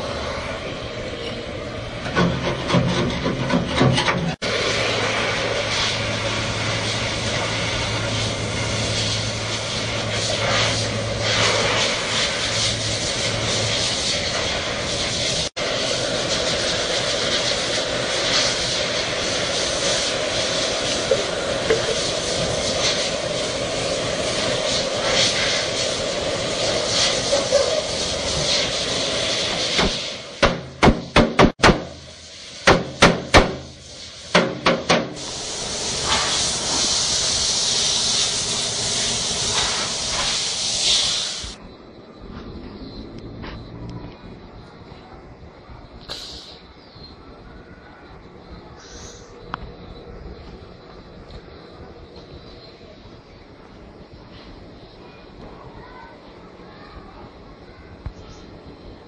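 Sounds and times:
welding torch flame hissing: 0:00.0 - 0:47.4, 0:48.1 - 0:59.0
hammer striking steel panel: 0:29.8 - 0:32.0, 0:32.6 - 0:33.7, 0:34.3 - 0:35.2.

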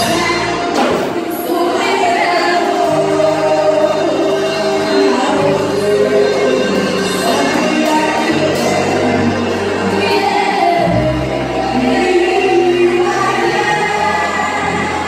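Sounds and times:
gospel singing: 0:00.0 - 0:15.0.

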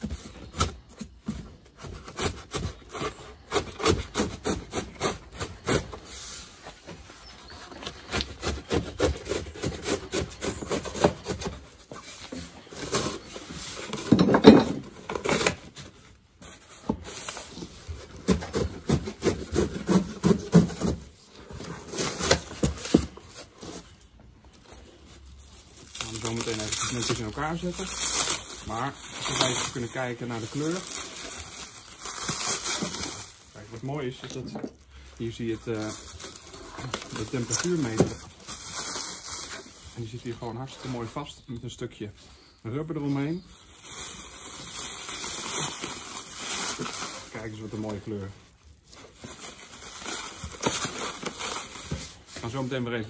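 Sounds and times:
cardboard rubbing and scraping: 0:14.9 - 0:24.0, 0:35.3 - 0:41.4.

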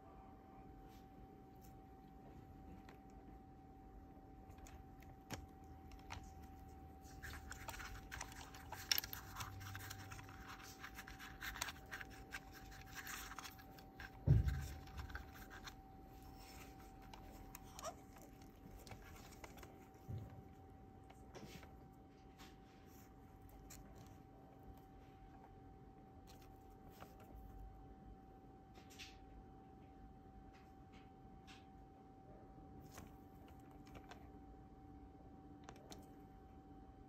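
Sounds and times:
faint steady whine: 0:00.0 - 0:37.0
dull thump: 0:14.2 - 0:14.9.

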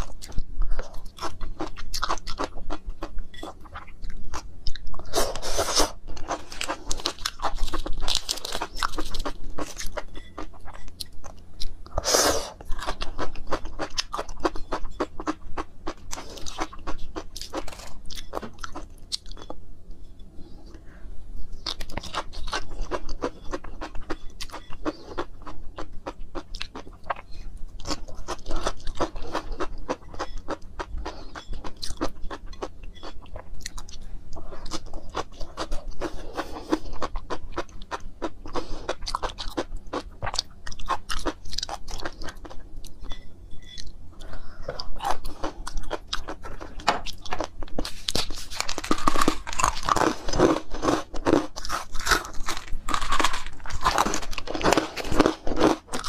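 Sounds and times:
crunchy wet chewing: 0:44.7 - 0:56.0.

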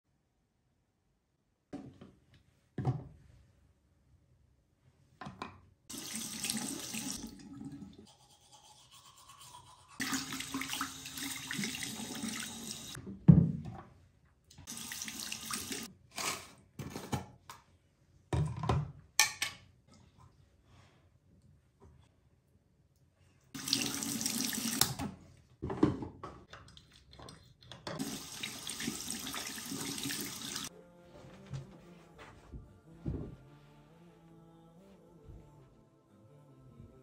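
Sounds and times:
tap water running: 0:05.9 - 0:13.0, 0:14.6 - 0:15.9, 0:23.6 - 0:25.1, 0:28.0 - 0:30.7.

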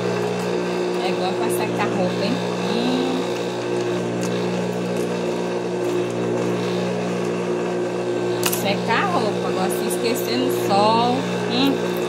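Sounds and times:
sewing machine motor humming: 0:00.0 - 0:12.0.

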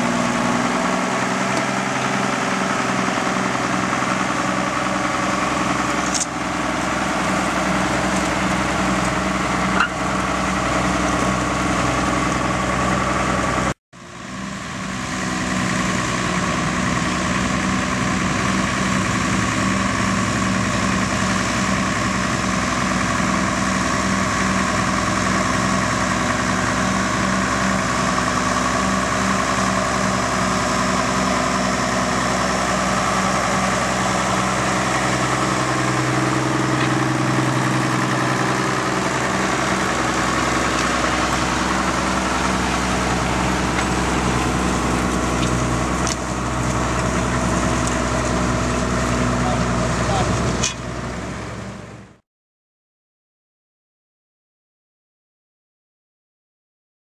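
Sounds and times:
tractor diesel engine under load: 0:00.0 - 0:52.2.

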